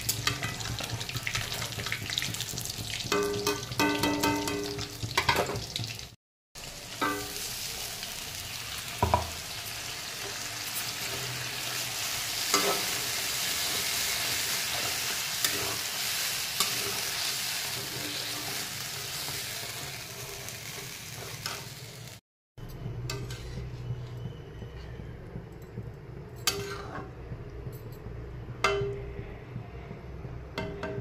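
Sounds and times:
paste sizzling in a pan: 5.7s - 22.2s
spatula stirring and scraping: 23.1s - 25.0s, 26.4s - 27.1s.

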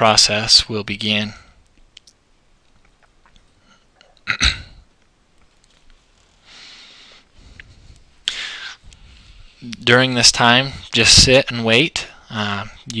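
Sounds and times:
person hiccup-like vocal sound: 4.2s - 4.8s
soft breath: 6.1s - 9.6s.

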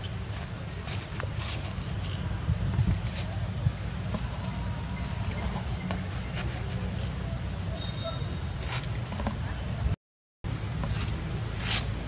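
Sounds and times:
insect chirps: 10.5s - 12.0s.

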